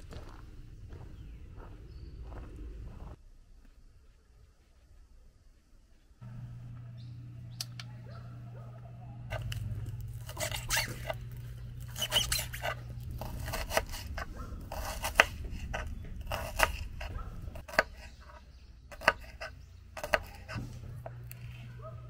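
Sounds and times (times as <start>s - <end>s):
low steady hum: 0.0s - 22.0s
knife chopping on wooden board: 12.0s - 21.2s.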